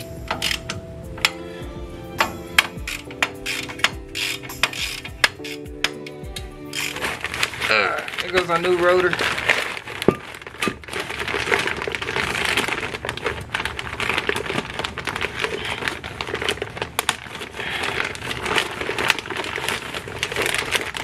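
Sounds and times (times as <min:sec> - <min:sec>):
plastic bag crinkling: 0:06.7 - 0:21.0.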